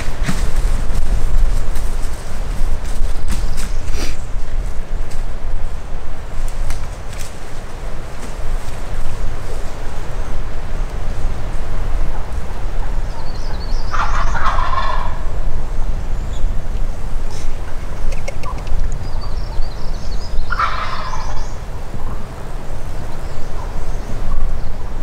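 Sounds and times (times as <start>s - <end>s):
wind rumbling on microphone: 0.0s - 25.0s
turkey gobbling: 12.1s - 15.3s, 20.5s - 22.2s.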